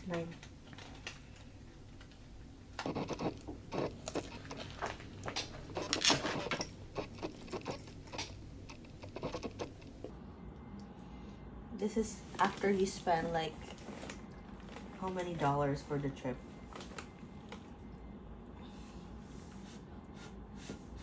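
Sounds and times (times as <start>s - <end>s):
plastic wrapping crinkling: 3.0s - 10.0s.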